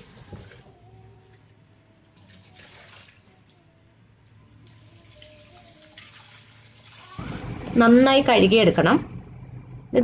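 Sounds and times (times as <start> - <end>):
water splashing and sloshing: 0.0 - 3.6, 4.3 - 9.6
tap water running: 4.5 - 10.0.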